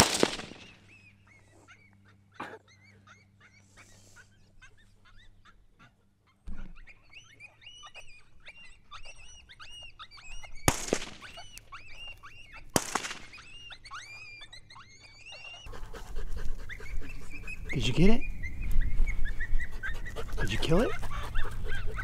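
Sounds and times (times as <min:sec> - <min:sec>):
gunshots: 0:00.0 - 0:00.8, 0:10.7 - 0:11.4, 0:12.8 - 0:13.4
animals yipping and squealing: 0:00.0 - 0:22.0.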